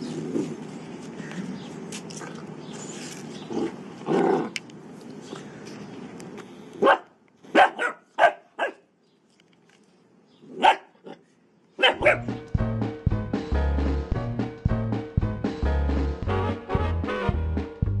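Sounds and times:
puppy barking: 0:06.8 - 0:08.9, 0:10.5 - 0:11.2, 0:11.8 - 0:12.3.

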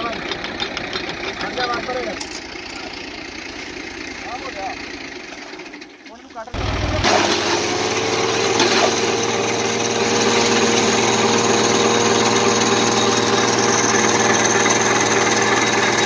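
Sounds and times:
tractor engine running: 0:00.0 - 0:16.0
chaff cutter chopping stalks: 0:06.6 - 0:16.0.

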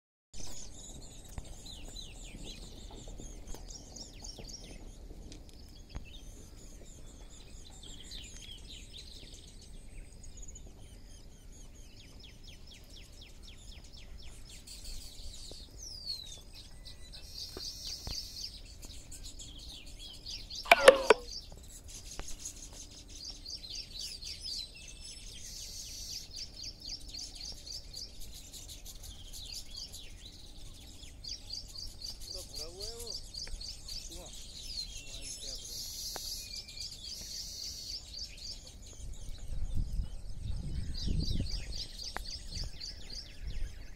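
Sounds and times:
birds chirping trills: 0:00.4 - 0:43.9
lower-pitched bird call: 0:20.7 - 0:21.4.

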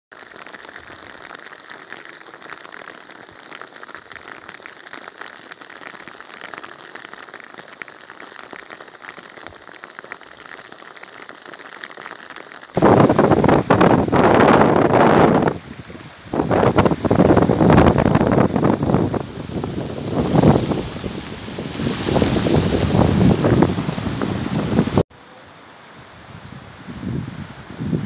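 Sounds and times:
rain pattering into a puddle: 0:00.1 - 0:25.0
wind buffeting the microphone: 0:12.8 - 0:25.0, 0:26.0 - 0:28.0
flooded river rushing: 0:12.8 - 0:26.8.

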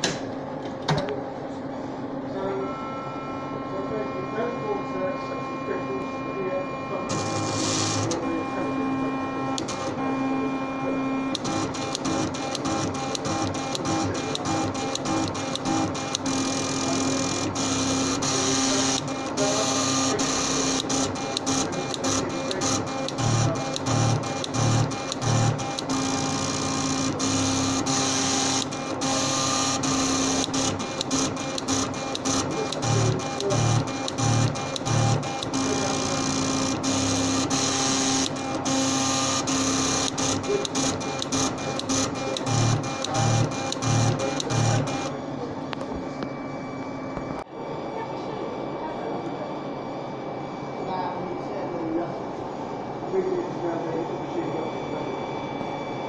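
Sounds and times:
plotter stepping motors buzzing: 0:02.6 - 0:45.3
sharp plotter clicks: 0:07.1 - 0:08.2, 0:09.6 - 0:10.0, 0:11.3 - 0:45.1.

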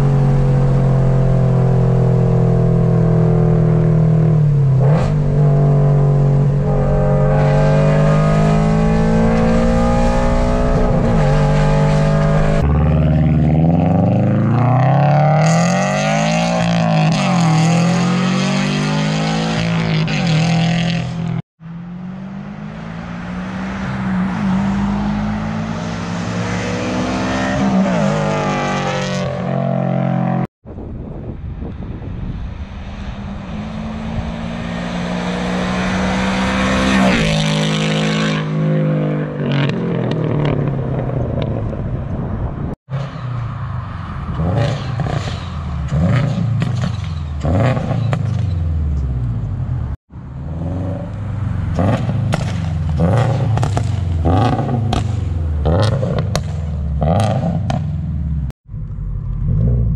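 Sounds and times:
car engine accelerating past: 0:04.2 - 0:30.4, 0:32.4 - 0:40.8.

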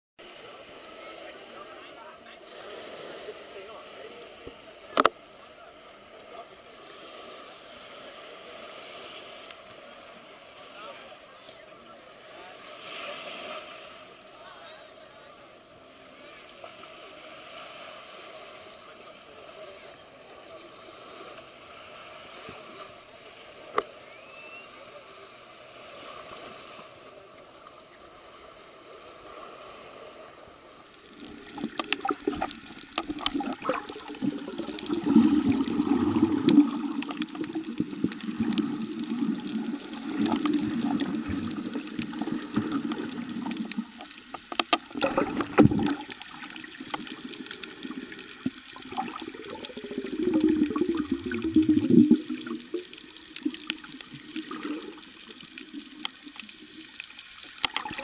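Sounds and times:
beach ambience: 0:00.2 - 0:58.0
underwater water noise: 0:00.2 - 0:58.0
underwater clicks and knocks: 0:31.5 - 0:46.2, 0:57.6 - 0:58.0.

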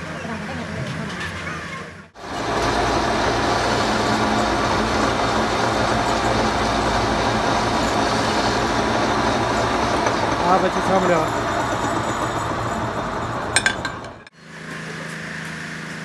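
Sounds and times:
metal lathe running: 0:02.2 - 0:14.3.

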